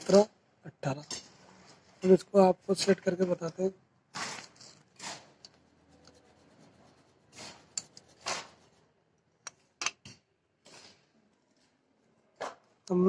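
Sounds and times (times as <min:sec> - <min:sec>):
hand rubbing and scraping metal: 0:04.1 - 0:11.0.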